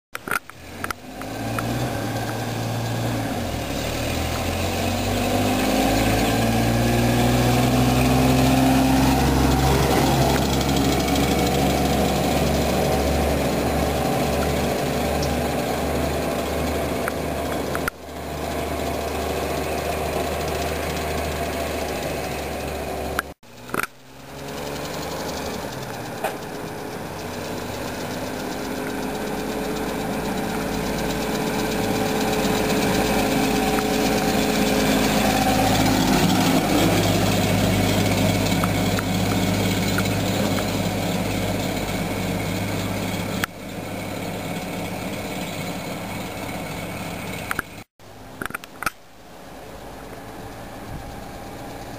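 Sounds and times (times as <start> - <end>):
pickup truck engine running: 0.2 - 48.3, 49.4 - 51.9.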